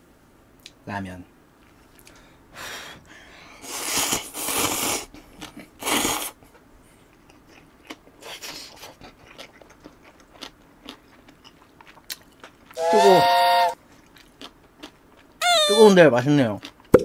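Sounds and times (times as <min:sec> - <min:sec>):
person slurping noodles: 0:03.6 - 0:05.1, 0:05.8 - 0:06.4
wet chewing: 0:07.1 - 0:12.8.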